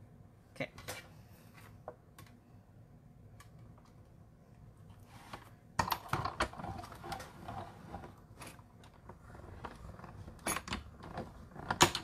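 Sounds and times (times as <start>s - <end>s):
plastic plates clicking and clattering: 10.4s - 12.0s.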